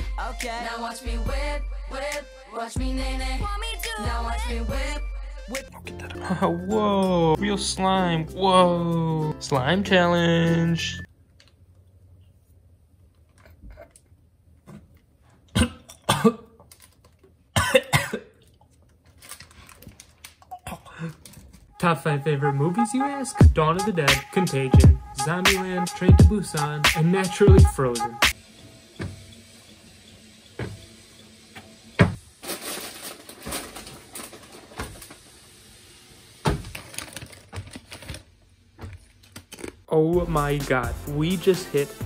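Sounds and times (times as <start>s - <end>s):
man coughing harshly: 15.5s - 16.6s, 17.6s - 18.4s.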